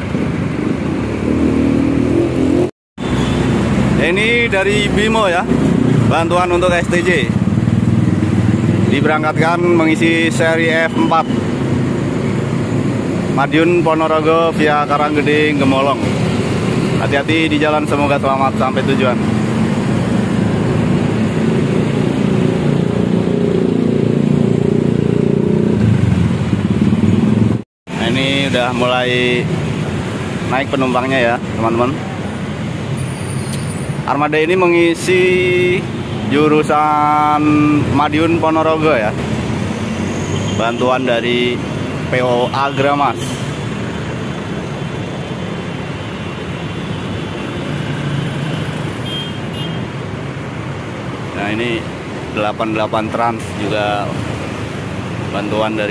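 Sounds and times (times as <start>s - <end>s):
road traffic passing: 0.0s - 55.9s
diesel engines running: 35.1s - 55.9s.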